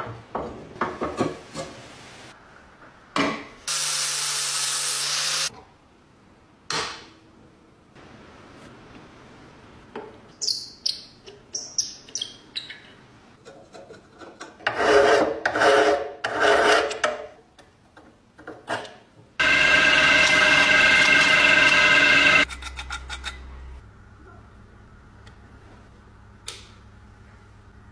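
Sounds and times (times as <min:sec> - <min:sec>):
metal file rasping on metal: 0:14.6 - 0:17.0
drill press boring into iron: 0:19.4 - 0:22.5.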